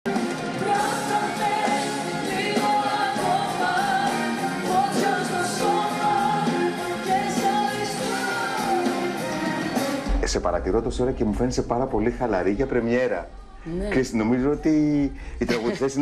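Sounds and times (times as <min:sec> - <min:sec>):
band playing: 0:00.1 - 0:16.0
woman singing live: 0:00.5 - 0:10.1.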